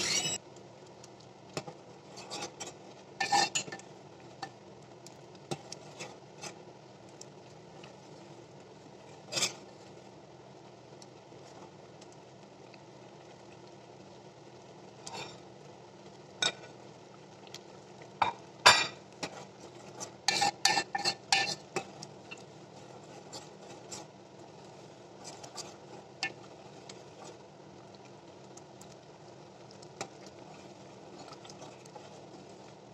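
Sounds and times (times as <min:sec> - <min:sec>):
metal spoon scraping pot: 0:00.0 - 0:00.4, 0:02.1 - 0:03.8, 0:09.2 - 0:09.6, 0:20.0 - 0:21.7.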